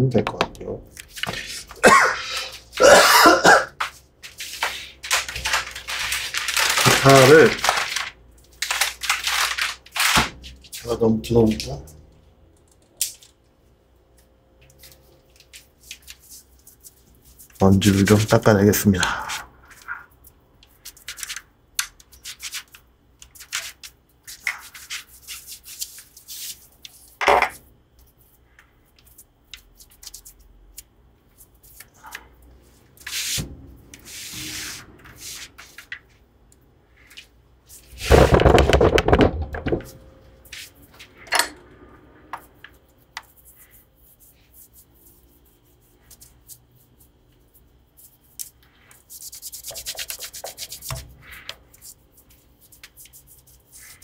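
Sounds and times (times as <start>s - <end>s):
cloth rubbing on guitar: 34.0s - 35.8s.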